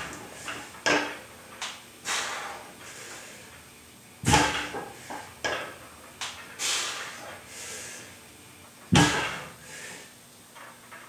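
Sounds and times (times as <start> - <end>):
hissing exhale: 2.0 - 3.5, 6.6 - 8.2, 9.6 - 10.2
weight plates clanking on floor: 4.2 - 6.5, 8.9 - 9.6.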